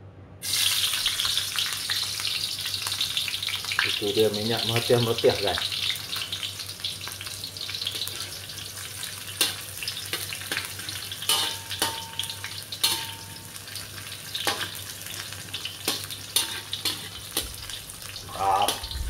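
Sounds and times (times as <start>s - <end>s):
food sizzling in hot oil: 0.4s - 19.0s
metal spatula scraping a pan: 9.4s - 19.0s.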